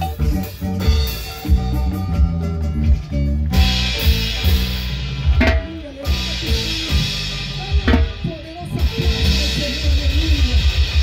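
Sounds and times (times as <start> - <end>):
live band music: 0.0 - 11.0
sharp drum strikes: 3.6 - 9.9.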